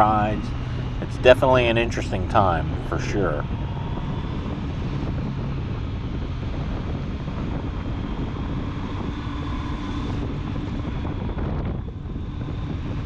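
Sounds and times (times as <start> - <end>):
motorcycle engine running: 0.0 - 13.0
wind rushing over microphone: 0.0 - 13.0.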